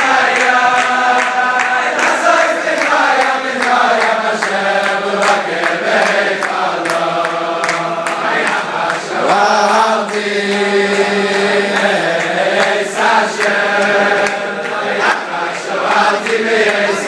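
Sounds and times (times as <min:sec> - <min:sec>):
men singing in unison: 0:00.0 - 0:17.0
rhythmic clapping: 0:00.0 - 0:17.0.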